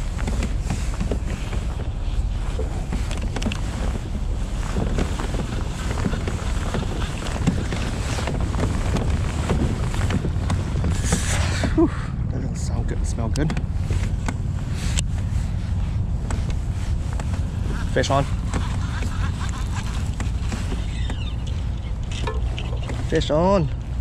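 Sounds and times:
wind buffeting the microphone: 0.0 - 24.0
hands handling fishing rod: 16.2 - 23.9.

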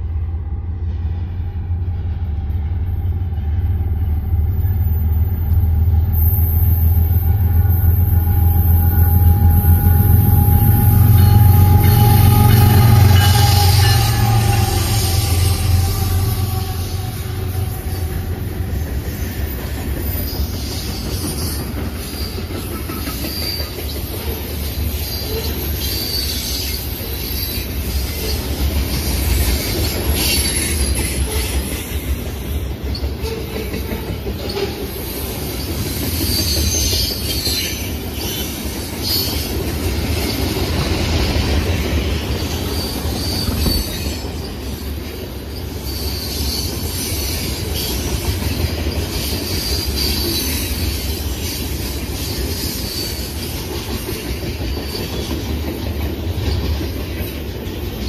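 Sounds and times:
freight train wheels rumbling: 0.0 - 58.0
high-pitched wheel squeal: 6.2 - 22.5, 42.6 - 44.6, 45.6 - 48.0, 52.5 - 53.4.

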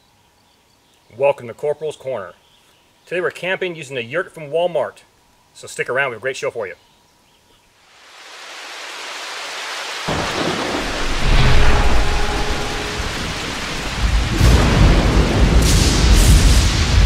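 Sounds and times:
steady rain: 7.8 - 17.0
deep thunder rumble: 10.1 - 17.0
brief whoosh: 10.8 - 14.6.

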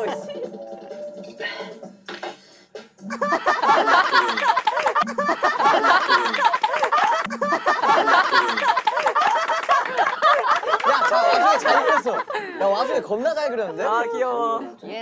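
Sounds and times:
young men laughing loudly: 0.0 - 0.5, 3.1 - 14.6.

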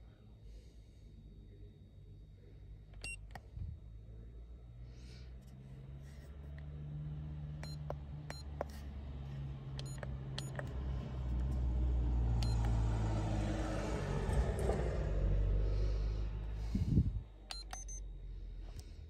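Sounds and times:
low hum: 0.0 - 19.0
short electronic beeps: 7.6 - 8.6, 9.8 - 10.6, 12.4 - 12.7, 17.5 - 18.1
button clicks: 17.5 - 18.0.

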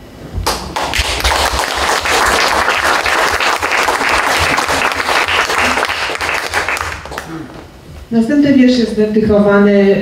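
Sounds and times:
audience applauding: 0.5 - 7.4.

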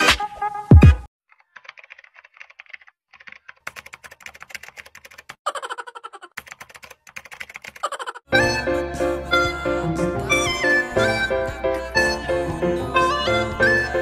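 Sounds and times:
computer keyboard typing: 1.3 - 5.4, 6.4 - 8.2.

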